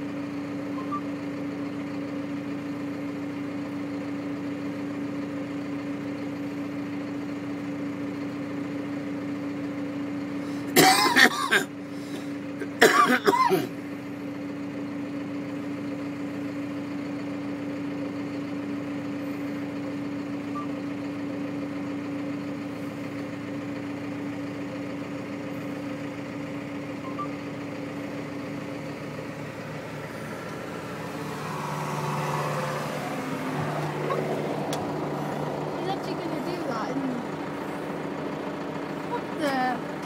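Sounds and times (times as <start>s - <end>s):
snowplough engine running: 0.0s - 40.0s
tractor engine: 0.0s - 40.0s.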